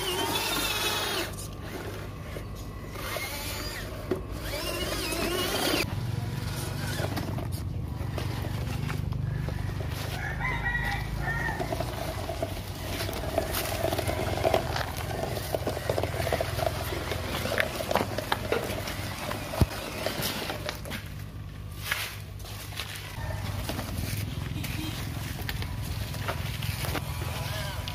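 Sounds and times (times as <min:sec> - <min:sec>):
small electric motor humming: 0:00.0 - 0:02.1, 0:02.8 - 0:07.3
rooster crowing: 0:09.3 - 0:12.0, 0:23.0 - 0:23.9.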